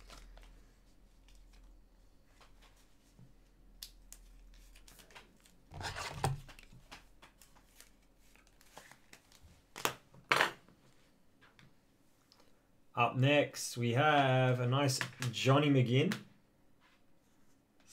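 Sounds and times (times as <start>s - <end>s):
crinkling scrape: 4.6s - 6.7s.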